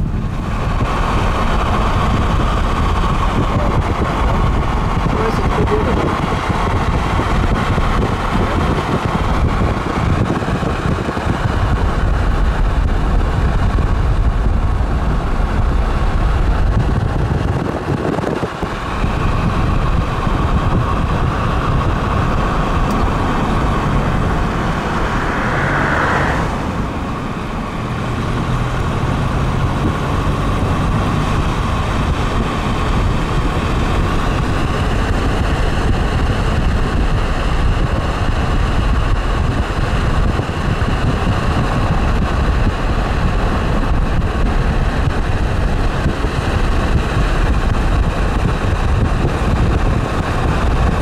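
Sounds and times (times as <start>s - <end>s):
car tyres and engine rumble: 0.0s - 51.0s.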